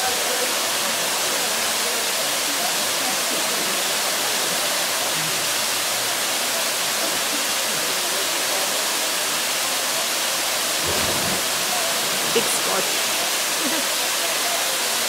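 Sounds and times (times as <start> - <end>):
waterfall rushing: 3.1 - 15.0
person plunging into pool: 10.8 - 13.3.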